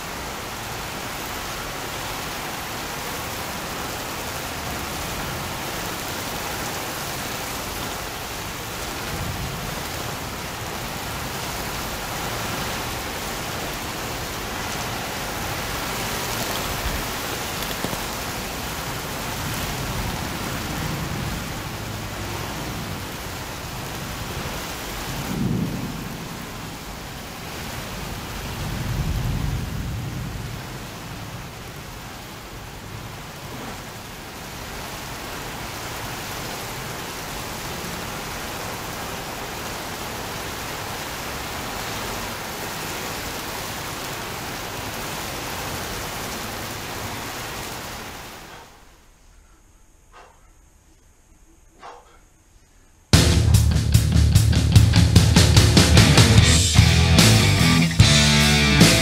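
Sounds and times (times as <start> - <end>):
steady rain: 0.0 - 59.0
low thunder rolls: 25.0 - 27.3, 28.1 - 31.6.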